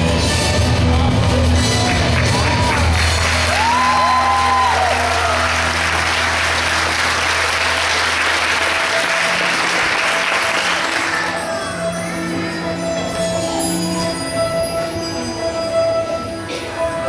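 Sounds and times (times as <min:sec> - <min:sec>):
background music: 0:00.0 - 0:17.0
audience applauding: 0:01.7 - 0:11.4.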